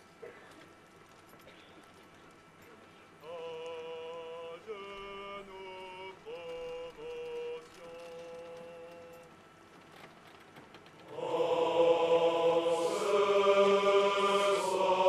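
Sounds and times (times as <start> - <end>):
men singing a chant: 3.2 - 8.0, 11.1 - 15.0.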